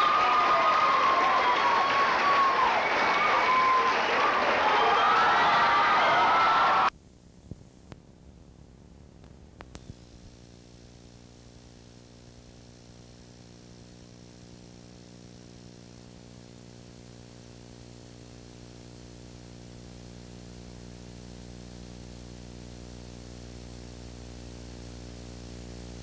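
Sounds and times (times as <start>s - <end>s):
electrical mains hum: 0.0s - 26.0s
tape hiss: 0.0s - 26.0s
sharp clicks of tape glitch: 9.2s - 16.0s.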